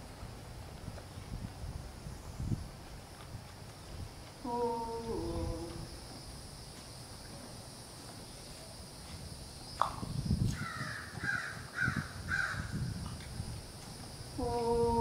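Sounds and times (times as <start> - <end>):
crow cawing: 10.6 - 12.8.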